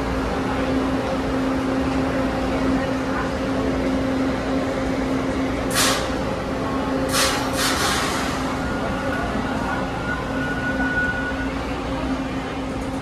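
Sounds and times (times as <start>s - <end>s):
subway train equipment hum: 0.0s - 13.0s
short air hiss: 5.7s - 6.2s, 7.1s - 8.4s.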